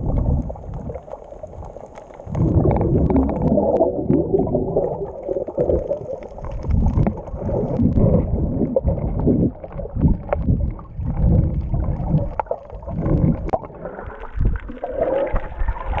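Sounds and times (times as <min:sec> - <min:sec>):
underwater rumbling and gurgling: 0:00.0 - 0:16.0
faint clicks: 0:00.1 - 0:03.9.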